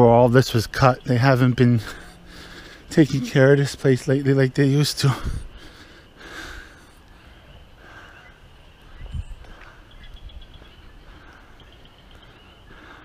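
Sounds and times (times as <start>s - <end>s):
bird chirping trill: 0.1s - 5.0s, 7.2s - 13.0s
person breathing: 1.8s - 3.3s, 5.2s - 10.0s, 11.0s - 13.0s
wind rumble on microphone: 7.4s - 12.3s.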